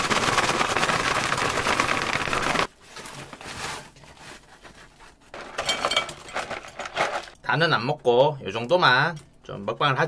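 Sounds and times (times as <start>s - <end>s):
chips rattling in shaken paper bag: 0.0s - 2.7s, 6.2s - 7.4s
paper rustling: 0.0s - 5.6s.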